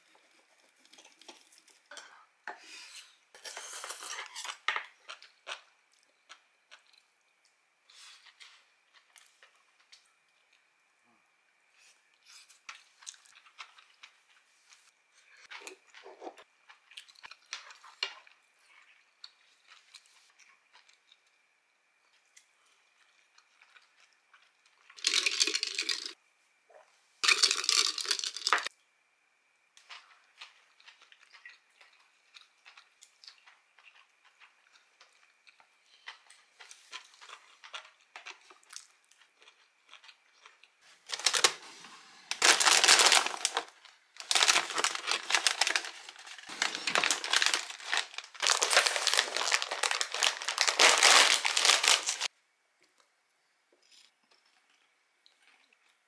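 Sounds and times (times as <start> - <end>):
chip bag crinkling: 25.0 - 26.2, 27.2 - 28.7, 36.9 - 41.7, 42.3 - 52.3.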